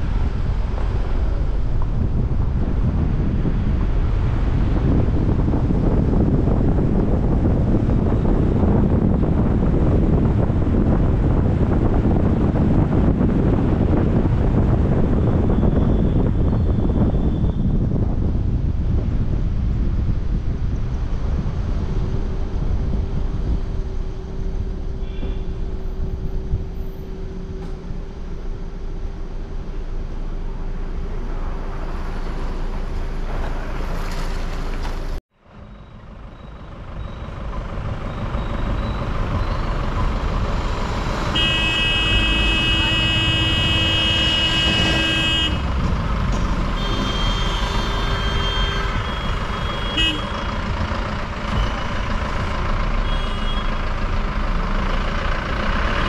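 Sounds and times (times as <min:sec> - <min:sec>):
car road and engine noise: 0:00.0 - 0:56.0
vehicle horn honking: 0:25.0 - 0:25.6, 0:41.3 - 0:45.8, 0:46.8 - 0:50.5, 0:53.0 - 0:53.8.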